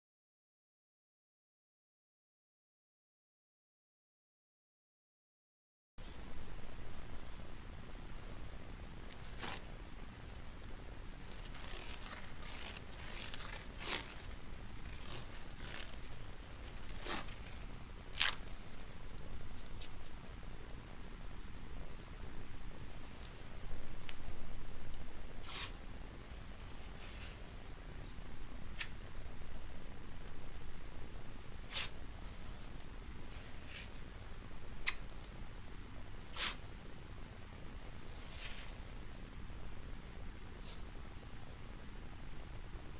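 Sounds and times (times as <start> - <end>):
hands rubbing tape: 9.1 - 9.7, 11.3 - 18.8, 25.4 - 27.8, 31.6 - 34.2, 36.2 - 36.7, 38.0 - 38.9
tape peeling off roll: 11.3 - 18.6
tape tearing off roll: 18.1 - 18.4
sharp click: 34.8 - 35.4.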